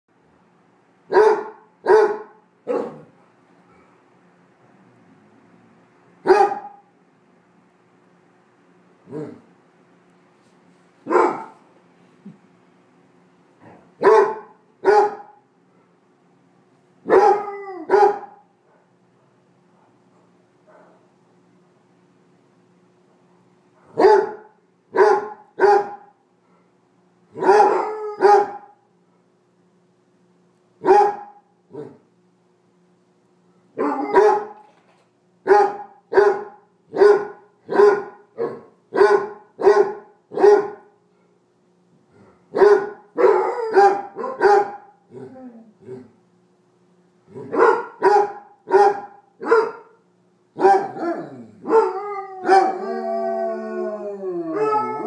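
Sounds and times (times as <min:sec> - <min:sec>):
dogs barking: 0:01.1 - 0:03.2, 0:06.2 - 0:06.9, 0:11.1 - 0:11.6, 0:14.0 - 0:15.4, 0:17.0 - 0:18.9, 0:19.8 - 0:21.1, 0:23.8 - 0:26.2, 0:27.3 - 0:28.8, 0:30.8 - 0:32.0, 0:33.8 - 0:34.6, 0:35.4 - 0:40.9, 0:42.5 - 0:45.0, 0:47.3 - 0:50.0, 0:50.6 - 0:52.9
dog howling: 0:17.1 - 0:18.2, 0:27.4 - 0:28.6, 0:43.2 - 0:46.1, 0:50.6 - 0:55.0.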